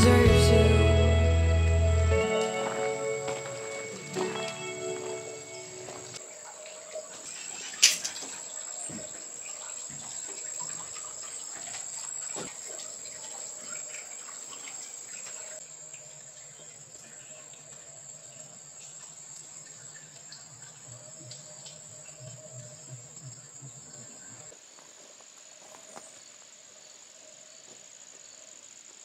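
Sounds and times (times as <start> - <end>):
high-pitched insect drone: 0.0 - 6.2.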